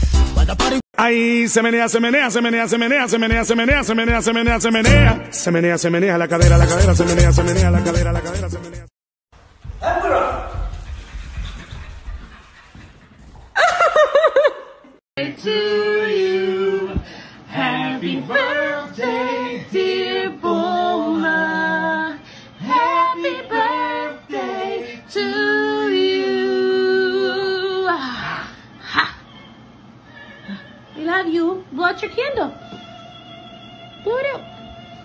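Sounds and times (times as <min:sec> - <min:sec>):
voices singing a capella: 0:02.4 - 0:05.2, 0:15.2 - 0:28.1, 0:32.6 - 0:35.0.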